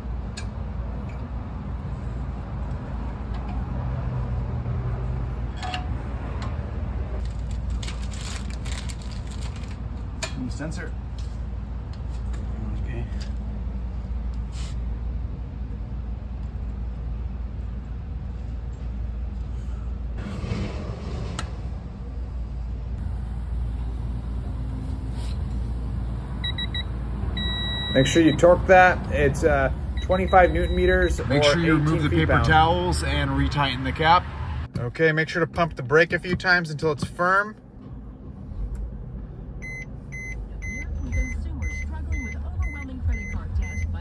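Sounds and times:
plastic bag crinkling: 0:07.3 - 0:09.8
steady low hum: 0:10.2 - 0:44.0
high digital beeps: 0:26.4 - 0:28.5, 0:29.8 - 0:31.2, 0:39.6 - 0:43.9.

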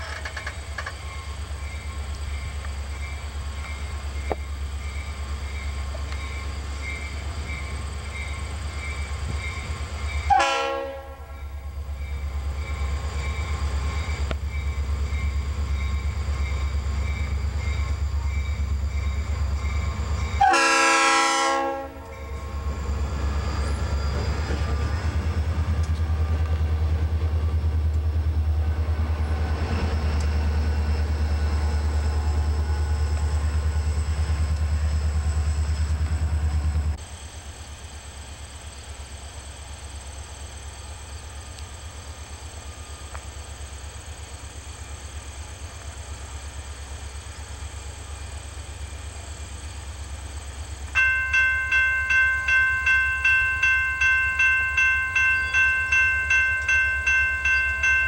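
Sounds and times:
locomotive air horn blasts: 0:10.3 - 0:11.4, 0:20.4 - 0:22.5
crossing bell ringing: 0:51.0 - 0:58.0.

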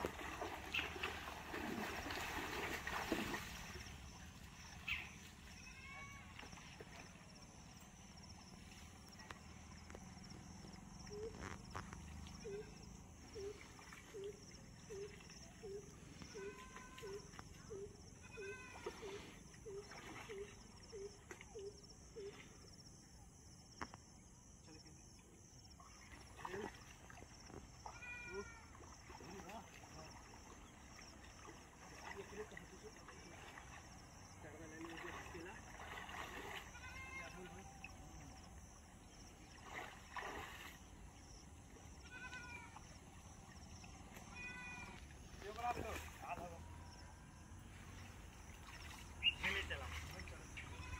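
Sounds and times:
pond water splashing: 0:00.0 - 0:50.9
higher drawn-out animal calls: 0:11.0 - 0:11.6, 0:12.3 - 0:22.4, 0:44.2 - 0:45.2.

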